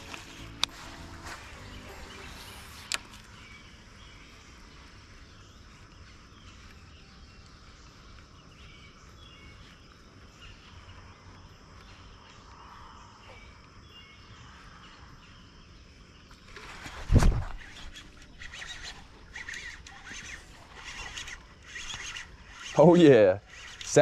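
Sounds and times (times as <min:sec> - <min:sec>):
birds chirping: 0:00.0 - 0:24.0
insects trilling: 0:00.0 - 0:24.0.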